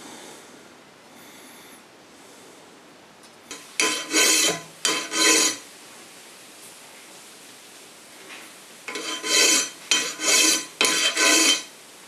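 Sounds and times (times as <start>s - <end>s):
file rasping on metal: 3.5s - 5.6s, 8.9s - 11.7s.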